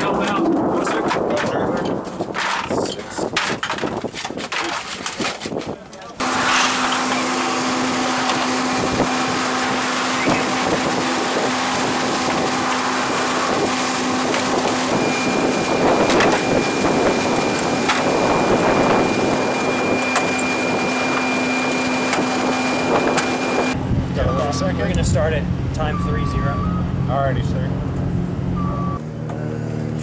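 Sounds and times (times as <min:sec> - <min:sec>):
machinery drone: 0:00.0 - 0:03.0, 0:06.2 - 0:30.0
high machine whine: 0:06.2 - 0:30.0.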